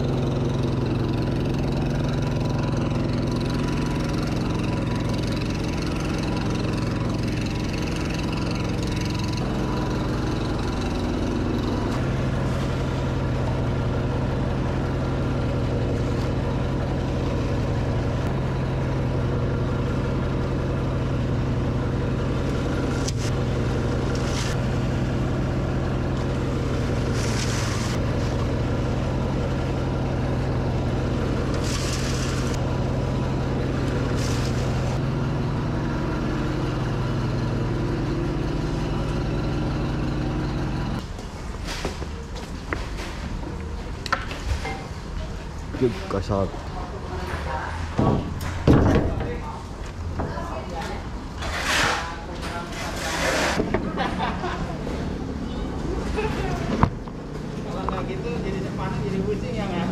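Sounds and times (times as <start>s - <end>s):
shredder motor humming: 0.0s - 41.0s
dry leaves crackling: 22.4s - 35.0s.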